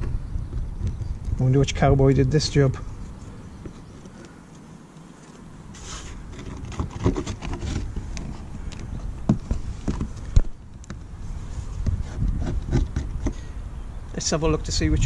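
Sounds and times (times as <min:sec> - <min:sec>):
tape rustling and tearing: 0:03.7 - 0:08.8.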